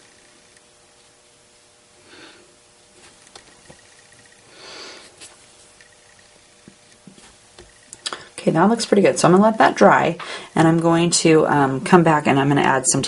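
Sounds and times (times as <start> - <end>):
soft breaths: 4.4 - 5.6, 10.2 - 10.6.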